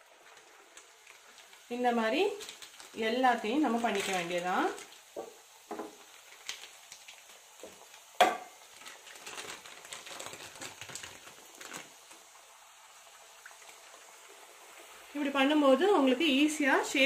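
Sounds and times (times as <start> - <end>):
plastic cover crinkling: 0.0 - 12.4.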